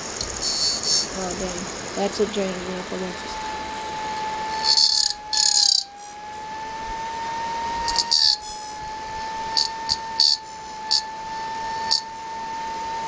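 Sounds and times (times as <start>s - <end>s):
siren high-pitched whine: 0.0s - 13.0s
short scratching noises: 0.3s - 1.2s, 3.8s - 6.1s.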